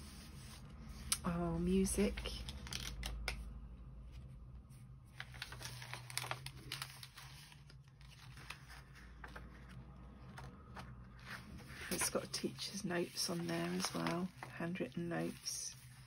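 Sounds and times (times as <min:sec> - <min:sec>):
paper pages rustling: 0:01.8 - 0:03.4, 0:05.0 - 0:16.0.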